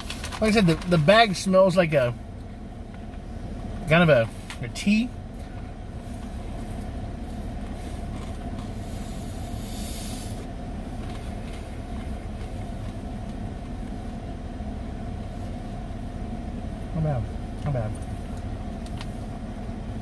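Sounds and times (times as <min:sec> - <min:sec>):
car engine idling: 0:00.0 - 0:20.0
brief hiss: 0:08.8 - 0:10.4.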